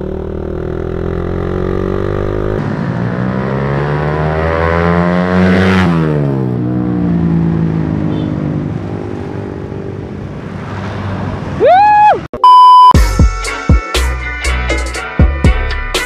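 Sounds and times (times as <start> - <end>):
motorcycle engine revving past: 0.0 - 9.6
rising electronic beep: 12.4 - 13.0.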